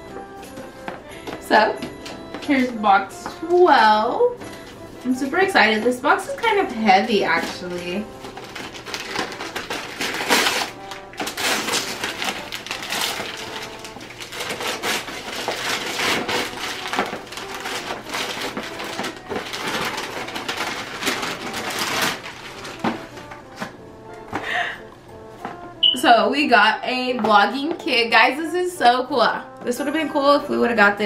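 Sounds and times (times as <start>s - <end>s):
wrapping paper tearing and crinkling: 6.9s - 23.7s.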